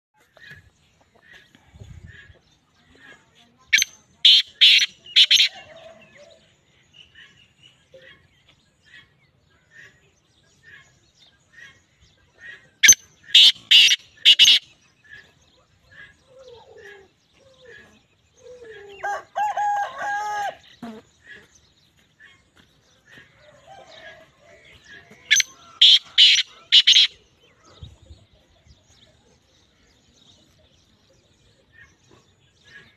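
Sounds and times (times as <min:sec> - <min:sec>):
francolin harsh rasping call: 0:03.7 - 0:05.6, 0:12.8 - 0:14.7, 0:25.3 - 0:27.2
faint regular chirps: 0:24.7 - 0:27.5.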